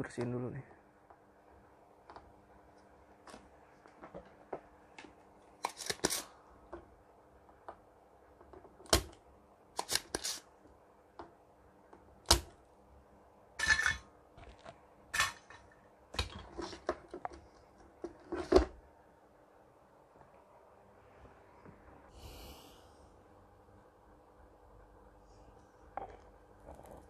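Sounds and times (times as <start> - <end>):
desoldering pump snapping and clicking: 8.8 - 9.2.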